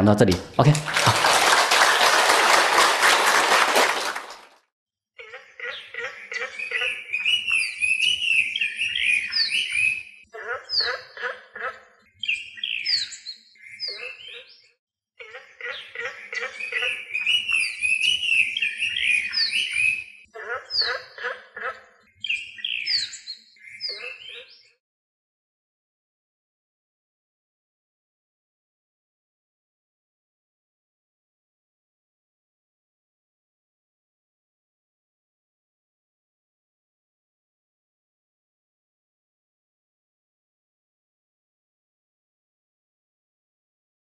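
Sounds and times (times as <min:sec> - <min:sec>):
audience applause: 0:00.3 - 0:04.5
recorded birdsong chirping: 0:05.2 - 0:24.8.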